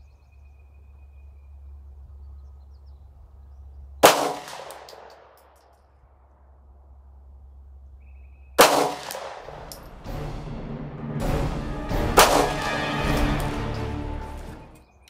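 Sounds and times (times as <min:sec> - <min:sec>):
pistol shot: 0:04.0 - 0:05.4, 0:08.6 - 0:09.8, 0:12.1 - 0:13.5
sharp crack: 0:04.0 - 0:05.7, 0:08.6 - 0:10.1, 0:11.9 - 0:14.5
background music: 0:09.0 - 0:15.0.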